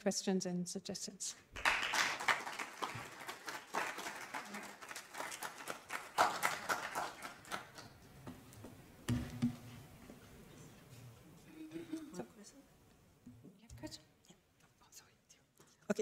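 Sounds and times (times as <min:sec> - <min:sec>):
audience applause: 0:01.6 - 0:08.0.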